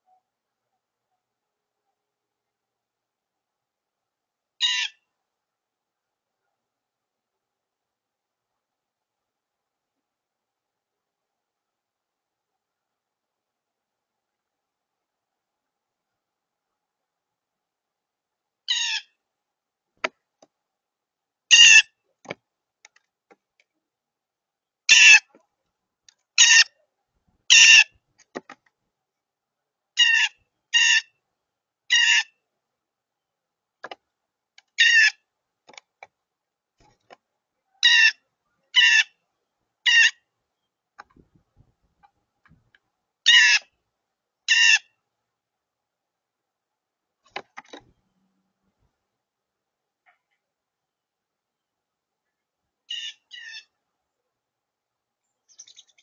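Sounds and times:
blue jay calling: 0:04.6 - 0:05.0, 0:18.7 - 0:19.2, 0:21.5 - 0:21.9, 0:24.9 - 0:25.3, 0:26.4 - 0:26.8, 0:27.5 - 0:27.9, 0:30.0 - 0:31.2, 0:31.9 - 0:32.4, 0:34.7 - 0:35.2, 0:37.8 - 0:39.2, 0:39.8 - 0:40.3, 0:43.2 - 0:43.7, 0:44.5 - 0:44.9, 0:52.9 - 0:53.7, 0:55.5 - 0:56.0.

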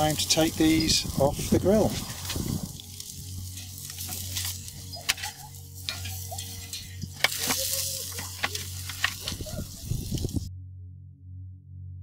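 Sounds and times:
light sizzle from grill: 0:00.0 - 0:10.5
metal tongs clicking on grill grate: 0:02.2 - 0:10.3.

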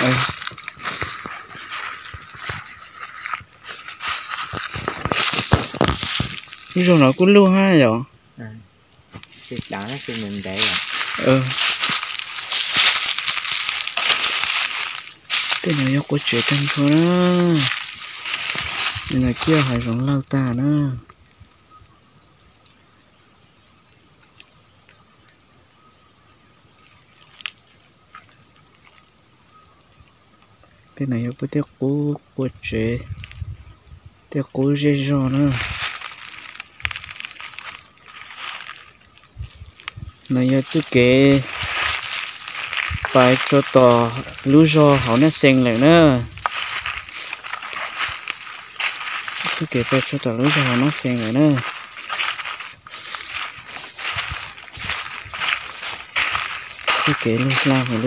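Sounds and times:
small clicks and crackles: 0:00.0 - 0:07.0, 0:09.0 - 0:30.8, 0:35.2 - 0:58.0
footsteps crunching dry leaves: 0:00.0 - 0:07.7, 0:09.1 - 0:22.0, 0:26.8 - 0:29.1, 0:34.6 - 0:58.0
steady high hiss: 0:00.0 - 0:33.0, 0:33.6 - 0:58.0.

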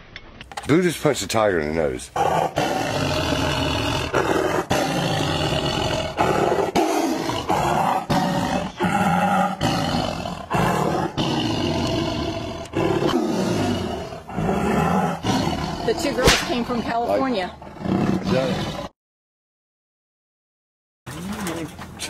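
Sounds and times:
tiger roaring: 0:02.1 - 0:19.0.

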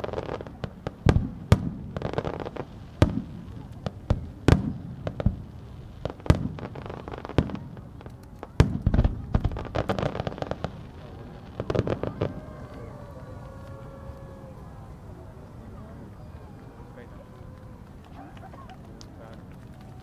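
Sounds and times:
firework crackling pops: 0:00.0 - 0:12.9.

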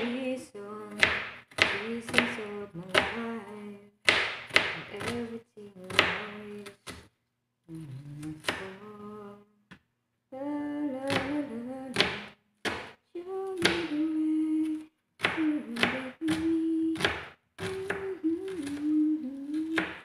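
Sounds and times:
woman humming: 0:07.7 - 0:09.6, 0:13.2 - 0:17.0, 0:17.6 - 0:20.0.

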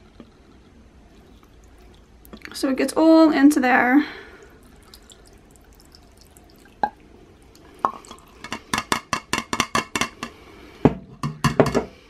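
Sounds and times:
liquid dripping into glass jar: 0:01.1 - 0:02.6, 0:04.3 - 0:09.3.

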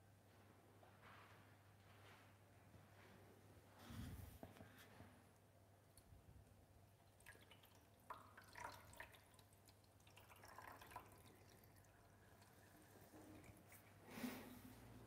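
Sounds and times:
water dripping and splashing: 0:07.0 - 0:14.0.

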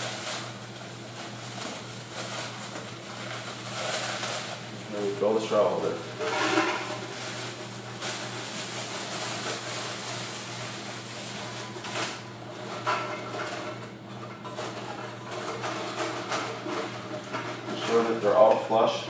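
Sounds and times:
plastic straws rustling: 0:00.0 - 0:06.0, 0:06.8 - 0:13.8
plastic bag crinkling: 0:00.0 - 0:13.7.

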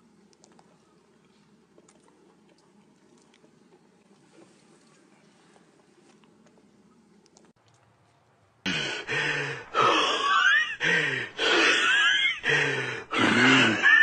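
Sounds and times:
heavy gasping breaths: 0:08.7 - 0:14.0
person groaning: 0:08.7 - 0:14.0.

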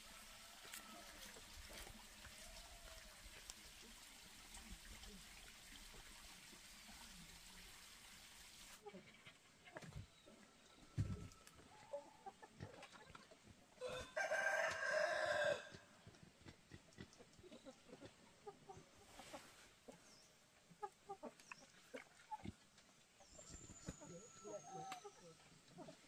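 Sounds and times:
chicken clucking: 0:08.8 - 0:22.6, 0:23.2 - 0:26.0
rooster crowing: 0:13.8 - 0:15.8.

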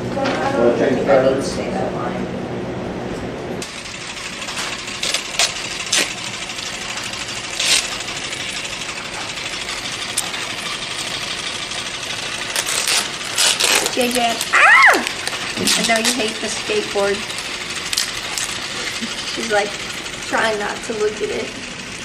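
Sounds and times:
electric fan whooshing: 0:00.0 - 0:22.0.

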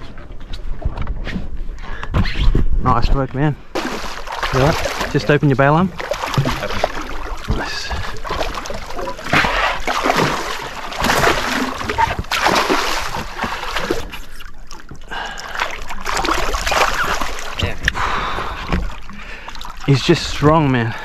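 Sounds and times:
fish splashing in water: 0:03.8 - 0:17.8.

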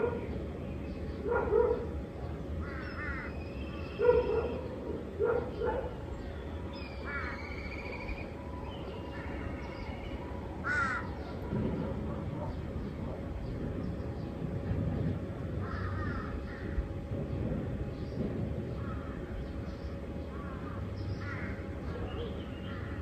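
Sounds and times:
crow cawing: 0:02.6 - 0:03.4, 0:07.0 - 0:07.8, 0:10.6 - 0:11.4, 0:15.6 - 0:16.8, 0:20.3 - 0:22.0
small birds chirping and whistling: 0:06.1 - 0:10.4.

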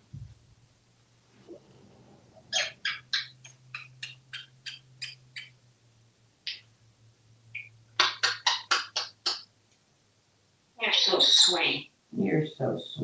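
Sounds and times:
parrot making kiss sounds: 0:08.0 - 0:09.4.

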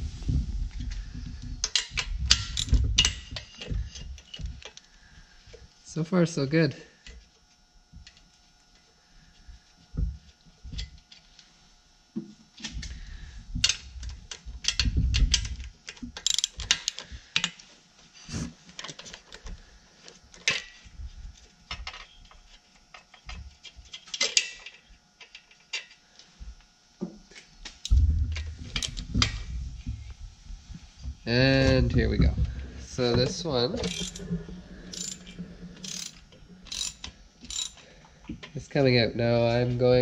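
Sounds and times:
socket ratchet clicking: 0:01.8 - 0:03.2, 0:16.2 - 0:17.0, 0:33.8 - 0:34.2, 0:34.9 - 0:35.2, 0:35.8 - 0:37.8
metal tools knocking: 0:33.1 - 0:34.3, 0:34.9 - 0:37.8.

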